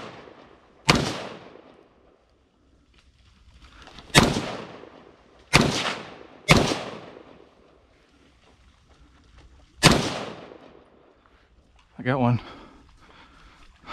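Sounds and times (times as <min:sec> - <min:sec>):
gunshots with echo: 0:00.0 - 0:01.8, 0:04.1 - 0:07.4, 0:09.8 - 0:10.8.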